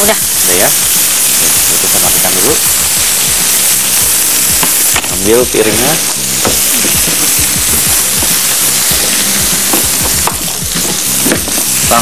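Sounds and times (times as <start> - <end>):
background music: 0.0 - 12.0
food sizzling in frying pan: 0.0 - 12.0.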